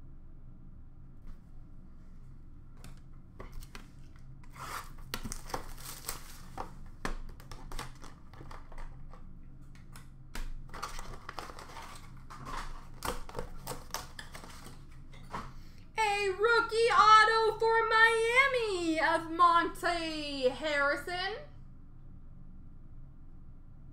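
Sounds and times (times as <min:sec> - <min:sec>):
packaging tearing and crinkling: 0:04.5 - 0:09.2, 0:10.4 - 0:15.0
plastic card cases clicking: 0:05.2 - 0:09.2, 0:09.8 - 0:15.5.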